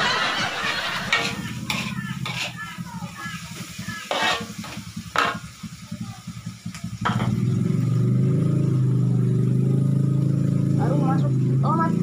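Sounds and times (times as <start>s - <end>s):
engine running: 0.0s - 12.0s
metal spatula clacking on wok: 1.0s - 2.6s, 4.1s - 5.4s.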